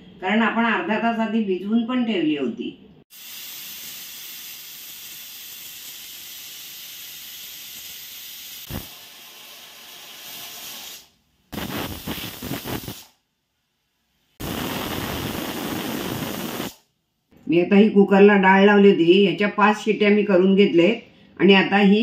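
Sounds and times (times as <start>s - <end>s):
pressure cooker steam hiss: 3.1s - 13.2s, 14.4s - 16.8s.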